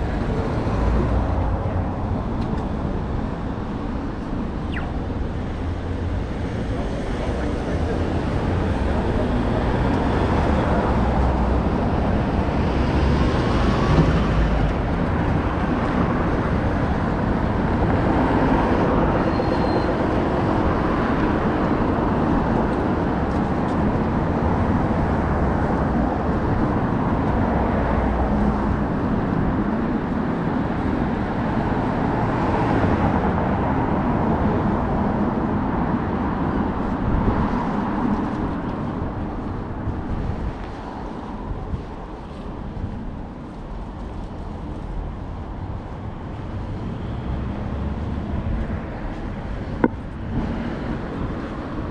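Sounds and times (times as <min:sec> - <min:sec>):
city road traffic: 0:00.0 - 0:51.9.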